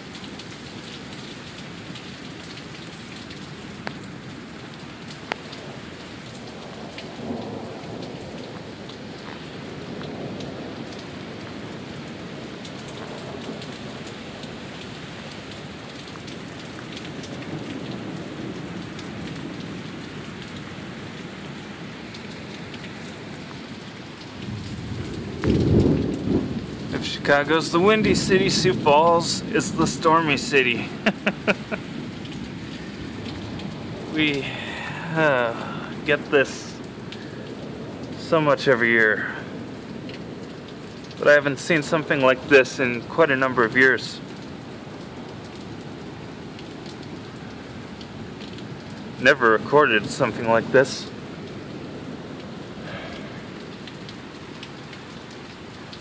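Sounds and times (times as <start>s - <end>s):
heavy rain pouring: 0.0s - 56.0s
low rumble of thunder: 6.7s - 14.1s, 24.4s - 31.2s, 31.8s - 40.8s.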